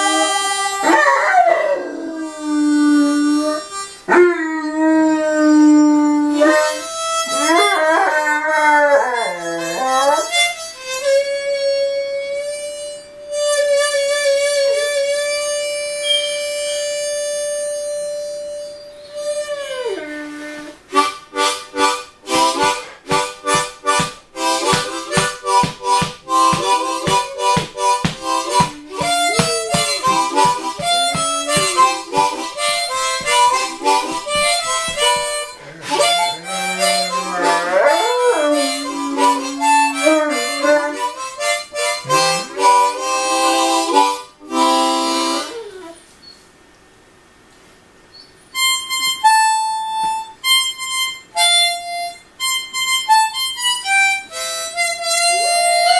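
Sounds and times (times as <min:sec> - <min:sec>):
puppy howling: 0:00.0 - 0:10.4, 0:18.8 - 0:20.8, 0:26.5 - 0:41.5
harmonica playing blues: 0:00.0 - 0:46.0, 0:48.5 - 0:55.9.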